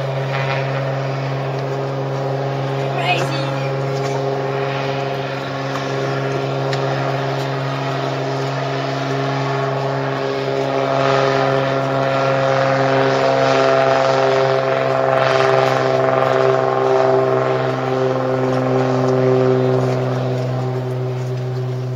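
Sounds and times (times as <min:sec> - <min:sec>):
propeller plane engine drone: 0:00.0 - 0:21.9.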